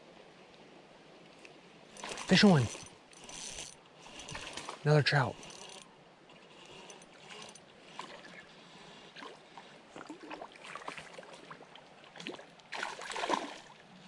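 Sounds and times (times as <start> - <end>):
fish splashing in water: 10.0 - 13.8.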